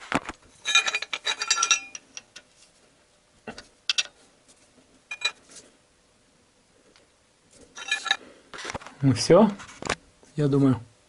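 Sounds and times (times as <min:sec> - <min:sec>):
wrench clinking on metal: 0:00.6 - 0:02.3, 0:03.9 - 0:04.1, 0:05.1 - 0:05.4, 0:07.8 - 0:08.2.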